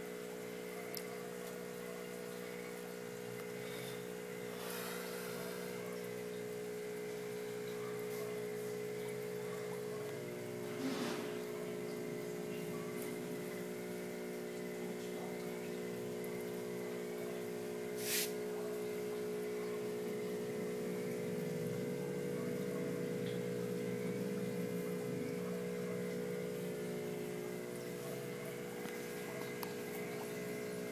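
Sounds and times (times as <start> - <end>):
aquarium pump humming: 0.0 - 30.9
short hiss: 18.0 - 18.4.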